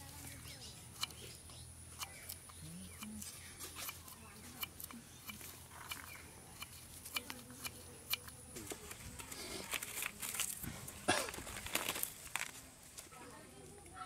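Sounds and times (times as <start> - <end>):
rustling: 8.5 - 14.0.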